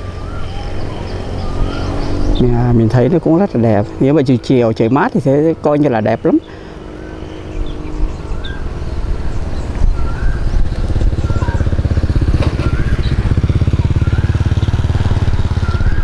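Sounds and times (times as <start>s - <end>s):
small engine running: 3.6s - 16.0s.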